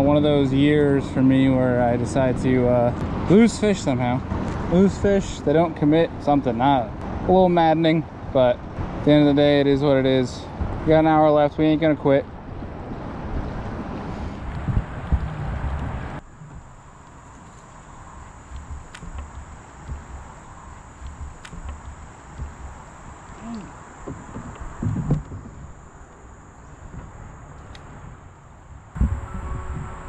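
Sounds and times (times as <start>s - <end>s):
river ambience: 0.0s - 30.0s
wind on microphone: 12.3s - 26.0s, 26.6s - 30.0s
high insect drone: 16.2s - 30.0s
soft splashes and knocks: 18.4s - 25.7s.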